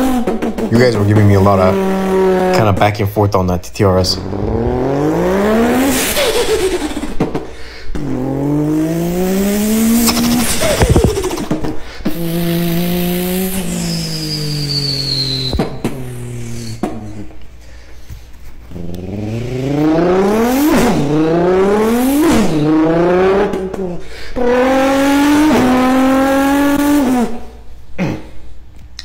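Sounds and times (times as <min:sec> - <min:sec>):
person imitating car engine: 0:04.0 - 0:07.1, 0:08.0 - 0:13.8.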